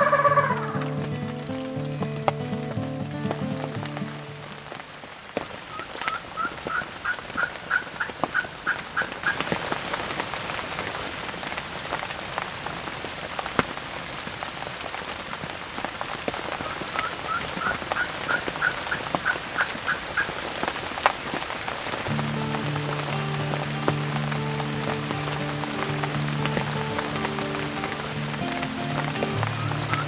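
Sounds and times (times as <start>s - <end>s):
turkey yelps: 0.0s - 0.8s, 6.0s - 9.4s
rain pattering: 0.0s - 30.0s.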